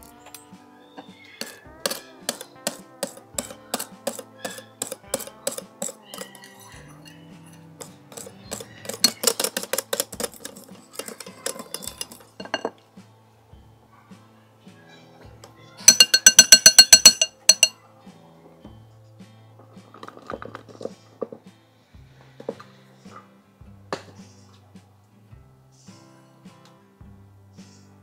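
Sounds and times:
whisk clicking against glass bowl: 1.4 - 6.4, 8.1 - 12.5, 15.9 - 17.7.

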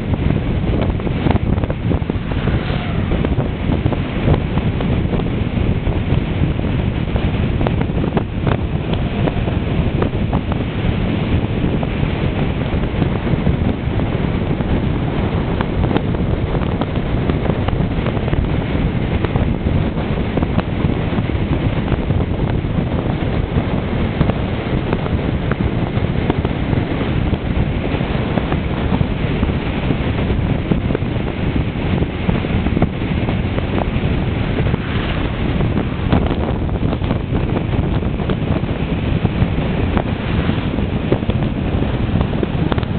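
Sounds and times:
wind buffeting microphone: 0.0 - 42.9.

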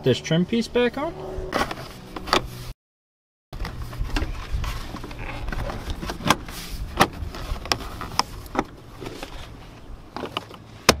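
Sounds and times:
rustling handling noise: 3.6 - 10.9.

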